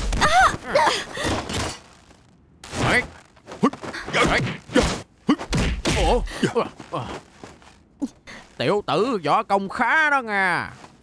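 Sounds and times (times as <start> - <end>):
fight blows and impacts: 0.0 - 7.3
fighters grunting and shouting: 2.8 - 7.3.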